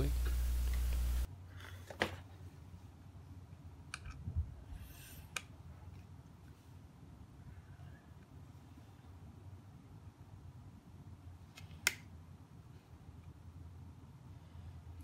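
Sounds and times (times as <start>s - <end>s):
low hum: 0.0s - 1.3s.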